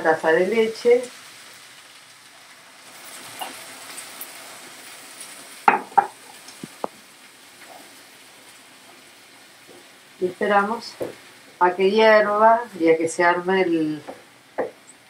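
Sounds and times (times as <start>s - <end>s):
milk sizzling in frying pan: 0.0s - 15.0s
wooden spoon knocking pan: 5.7s - 6.2s, 14.0s - 14.8s.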